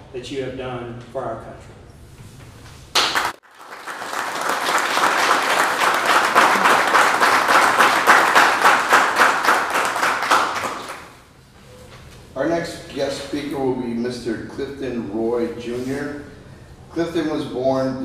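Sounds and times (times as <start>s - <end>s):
small audience applauding: 2.9s - 11.2s.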